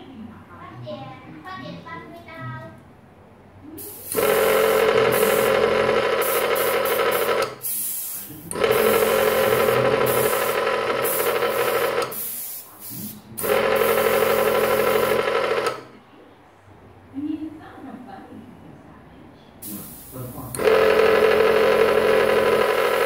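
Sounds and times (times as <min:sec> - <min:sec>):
compressor motor humming with hiss: 0:03.8 - 0:15.9, 0:19.6 - 0:23.0.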